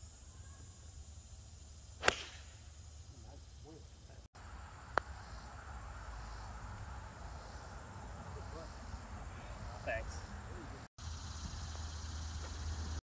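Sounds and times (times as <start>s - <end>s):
golf driver striking ball: 2.0s - 2.5s.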